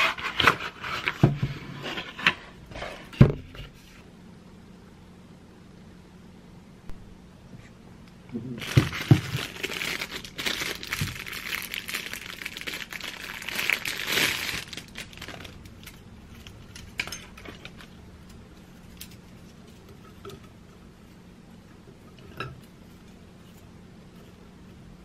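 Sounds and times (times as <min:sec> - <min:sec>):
plastic wrapping crinkling: 0:08.6 - 0:18.0.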